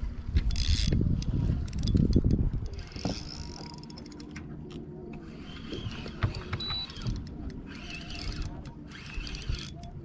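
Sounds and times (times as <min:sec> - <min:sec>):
fishing reel clicking and cranking: 0:00.4 - 0:10.0.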